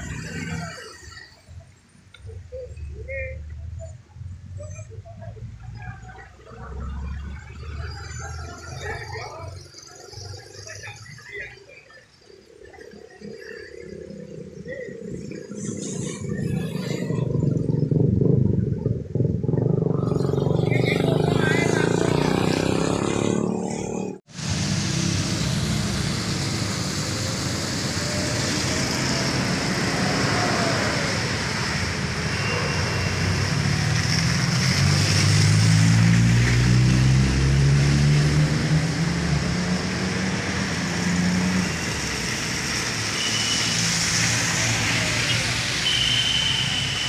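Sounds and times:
car engine: 0.0s - 47.0s
cars driving past: 4.2s - 47.0s
rain hiss: 24.3s - 37.1s, 37.8s - 47.0s.

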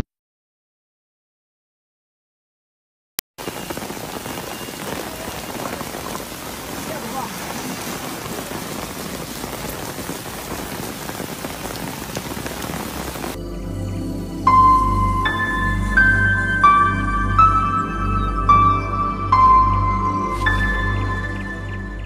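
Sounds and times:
heavy rain on pavement: 3.4s - 13.4s, 20.3s - 21.5s.

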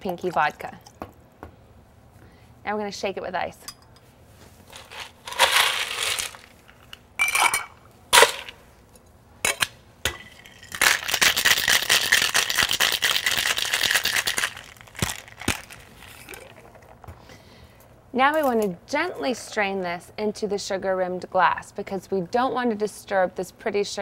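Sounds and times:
ice rattling in shaken shaker: 4.7s - 6.5s, 10.4s - 16.9s.

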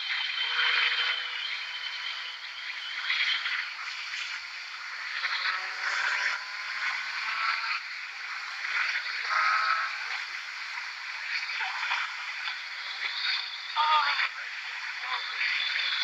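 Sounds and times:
motorcycle engine: 0.0s - 8.6s.

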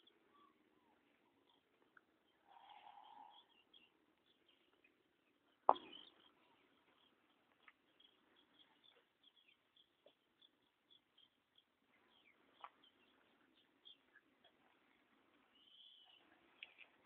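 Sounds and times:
faint high animal chirps: 2.4s - 3.6s.

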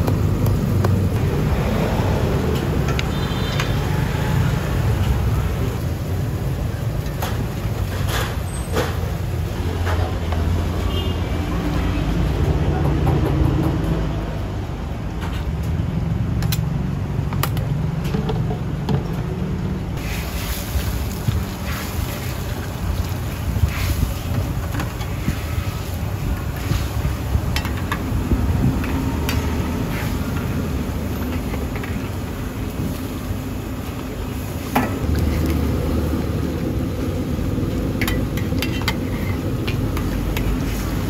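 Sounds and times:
gas burner rumbling: 0.0s - 41.0s
broth boiling: 19.9s - 41.0s.

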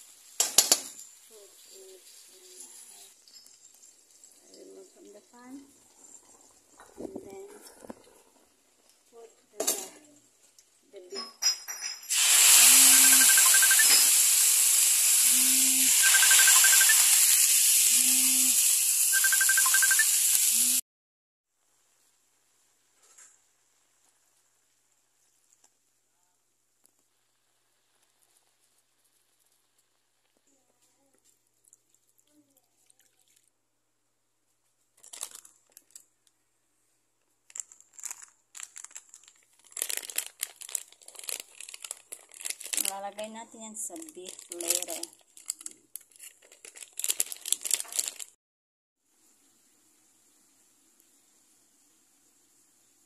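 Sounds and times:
meat sizzling in a wok: 0.0s - 5.4s, 12.1s - 20.8s
plastic sachet crinkling: 34.8s - 36.4s, 37.2s - 48.4s.

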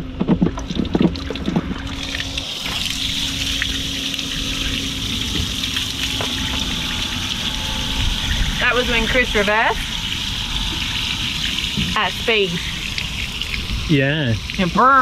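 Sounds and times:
low steady hum: 0.0s - 15.0s
water draining from boat: 0.0s - 15.0s.

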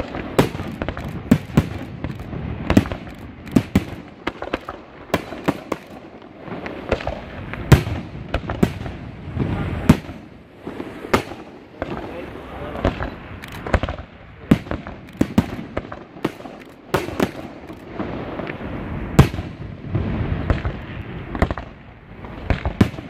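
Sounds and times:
fireworks bangs: 0.0s - 23.0s
fireworks crackle: 0.0s - 23.0s.

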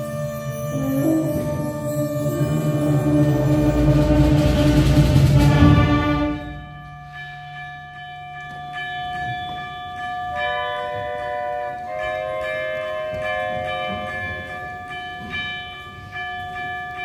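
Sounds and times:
struck chime ringing: 0.0s - 5.2s
soft held woodwind notes: 0.0s - 6.8s
concert band playing: 0.5s - 6.8s
low drums: 1.4s - 6.9s.

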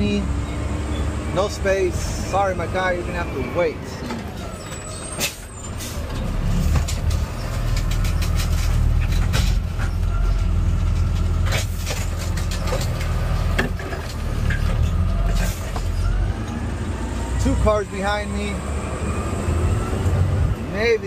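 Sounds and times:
garbage truck engine revving: 0.0s - 20.8s
trash clattering: 4.0s - 16.6s.

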